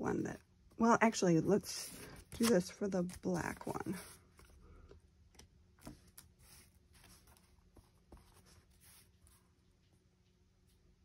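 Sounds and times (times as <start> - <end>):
soft paper rustle: 1.7 - 10.8.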